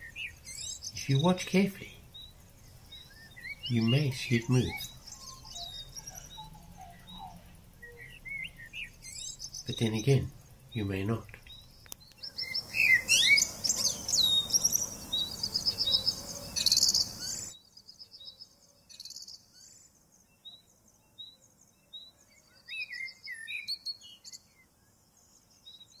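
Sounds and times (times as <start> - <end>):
birds chirping and whistling: 0.0 - 17.6, 22.0 - 24.6
steady background hiss: 0.0 - 26.0.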